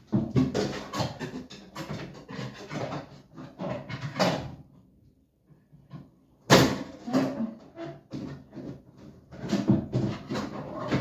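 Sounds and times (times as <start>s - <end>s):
tool scraping in plastic tub: 0.0s - 4.6s, 7.0s - 11.0s.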